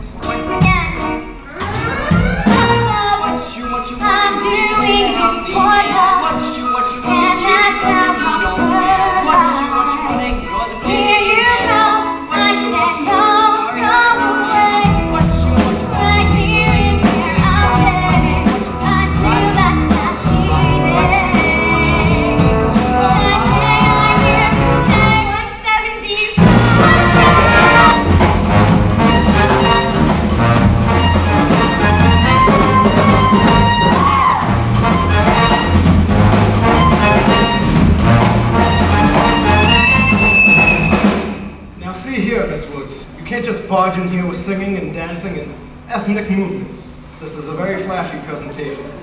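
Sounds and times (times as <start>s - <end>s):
instrumental accompaniment: 0.0s - 25.6s, 26.4s - 41.8s
low bass part: 1.5s - 3.0s, 26.4s - 41.2s
women singing: 2.9s - 27.9s.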